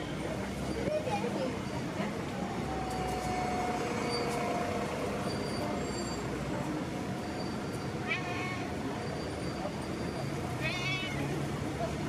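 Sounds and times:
city street traffic rumble: 0.0 - 12.0
faint thin squeal: 2.7 - 4.5.

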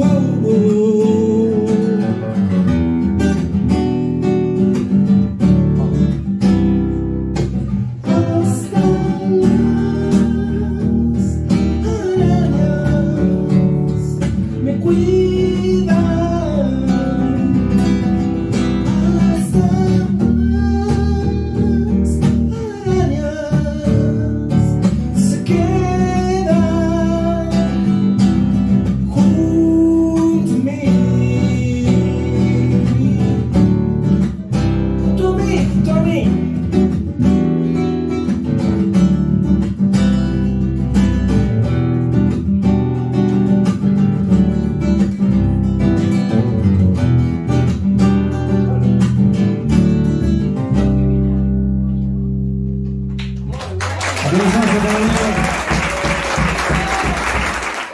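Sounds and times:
man singing: 0.0 - 2.8, 7.9 - 28.2, 28.8 - 36.9, 54.2 - 57.1
classical guitar: 0.0 - 54.0
electric bass: 0.0 - 55.6.

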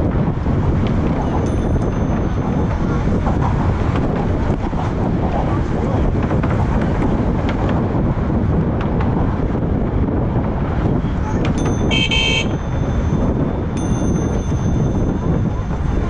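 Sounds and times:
wind buffeting microphone: 0.0 - 16.0
high thin ringing tones: 11.6 - 15.7
electronic car horn beep: 11.8 - 12.6.

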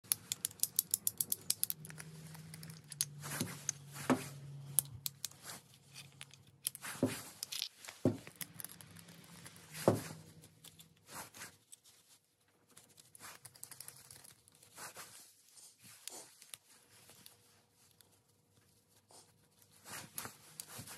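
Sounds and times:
metal parts clicking and clinking: 0.0 - 3.8, 4.7 - 9.6.

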